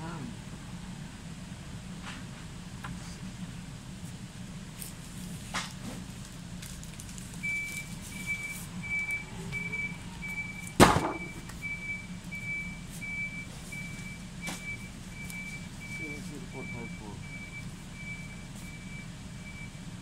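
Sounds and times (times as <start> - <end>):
electronic warning beeper: 7.4 - 19.8
loud sharp knock: 10.8 - 11.3.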